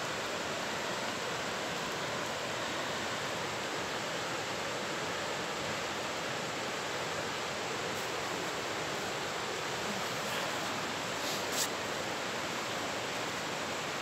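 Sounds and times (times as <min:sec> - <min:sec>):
river rushing: 0:00.0 - 0:14.0.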